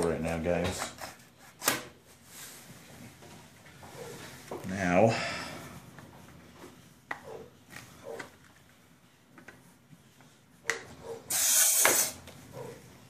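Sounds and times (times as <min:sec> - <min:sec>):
pressurised gas hissing: 0:11.3 - 0:12.2.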